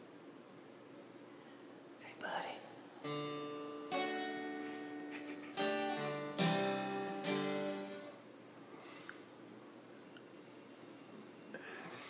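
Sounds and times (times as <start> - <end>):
acoustic guitar strummed slowly: 3.0 - 8.3.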